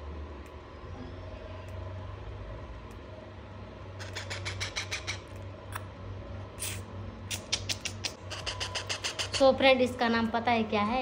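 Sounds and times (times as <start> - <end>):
steady low hum: 0.0 - 11.0
parrot chick calling: 4.0 - 5.3.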